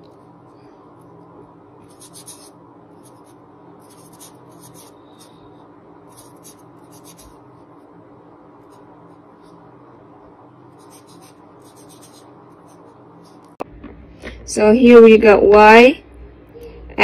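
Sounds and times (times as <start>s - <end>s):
faint low hum: 0.0s - 17.0s
marker writing on paper: 1.9s - 4.9s, 6.1s - 7.4s, 10.8s - 13.5s.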